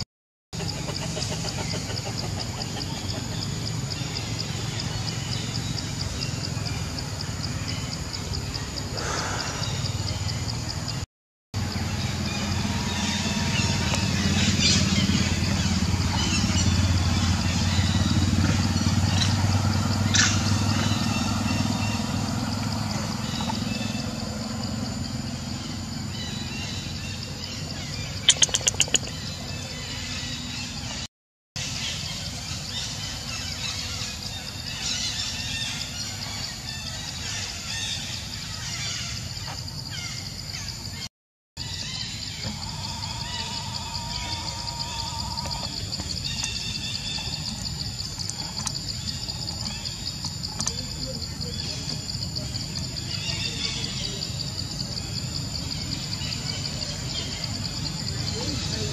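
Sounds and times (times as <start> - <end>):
high insect drone: 0.6 - 11.0, 11.6 - 30.9, 31.6 - 58.9
faint chirps: 2.9 - 11.0, 22.8 - 31.0
birds chirping and calling: 9.0 - 10.7, 20.0 - 22.2, 25.4 - 58.9.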